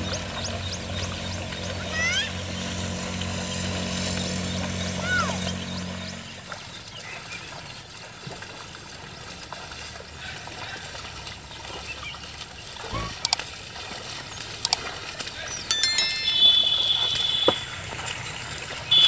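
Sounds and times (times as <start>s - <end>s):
low engine hum: 0.0s - 9.8s
water splashing and trickling: 0.0s - 19.0s.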